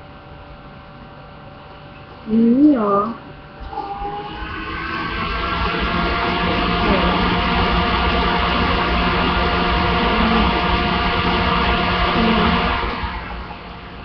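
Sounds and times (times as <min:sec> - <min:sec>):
loud motor running: 0:03.6 - 0:14.0.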